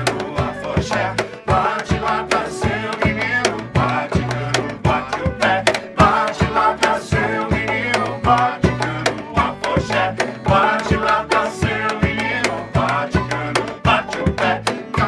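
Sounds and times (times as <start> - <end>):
man singing: 0.0 - 15.0
percussion beat: 0.0 - 15.0.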